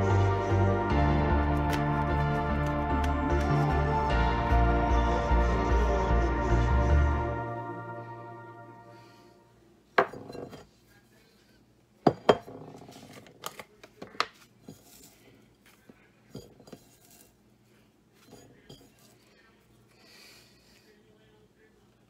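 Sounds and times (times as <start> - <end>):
glass jar clinking on ceramic bowl: 10.0 - 10.7, 12.0 - 12.9.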